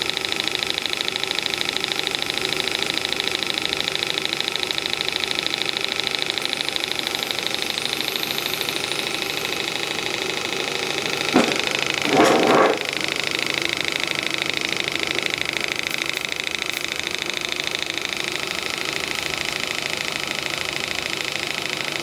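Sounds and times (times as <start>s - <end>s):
model steam engine running: 0.0s - 22.0s
brief thump: 11.4s - 12.8s.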